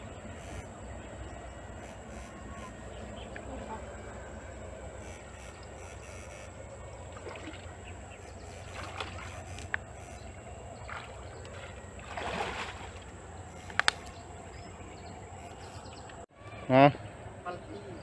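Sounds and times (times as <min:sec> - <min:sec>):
steady low hum: 0:00.0 - 0:16.3
water sloshing around legs: 0:06.8 - 0:14.8
sharp clicks: 0:13.5 - 0:14.2.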